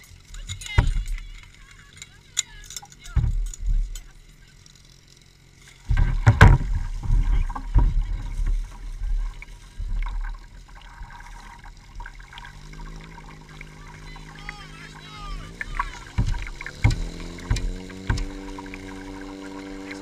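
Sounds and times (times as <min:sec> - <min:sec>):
water splashing in a tank: 0:05.9 - 0:20.0
lapping water: 0:07.0 - 0:20.0
hose strainer knocks: 0:15.9 - 0:19.2.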